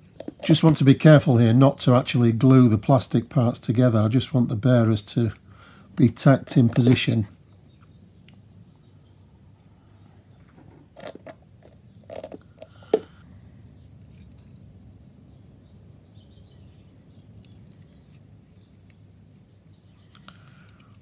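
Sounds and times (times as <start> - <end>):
faint handling sounds: 0.0 - 1.1, 5.3 - 7.9, 13.9 - 14.9, 17.4 - 21.0.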